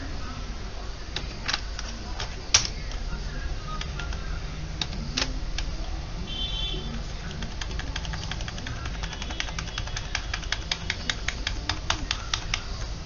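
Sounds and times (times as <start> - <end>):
keyboard keys pressed: 7.2 - 13.0.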